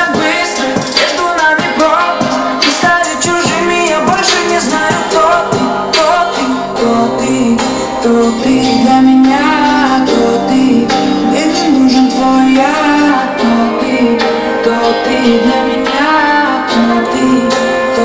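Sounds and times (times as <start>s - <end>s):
pop song with woman singing: 0.0s - 18.0s.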